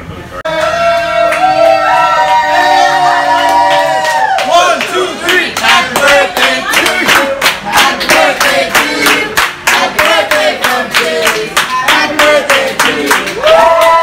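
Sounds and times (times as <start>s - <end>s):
rhythmic clapping: 3.7s - 14.0s
group singing in unison: 4.5s - 13.3s.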